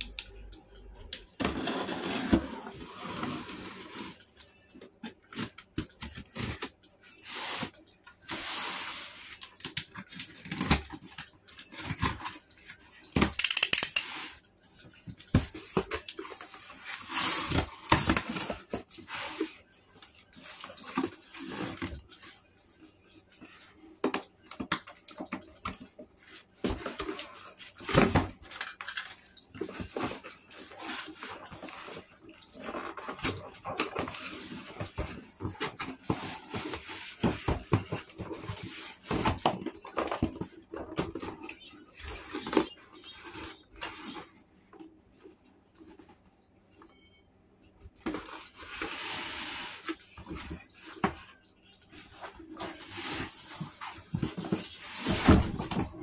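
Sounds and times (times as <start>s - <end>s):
cardboard scraping and rustling: 1.4s - 4.2s, 15.2s - 19.6s, 52.0s - 56.0s.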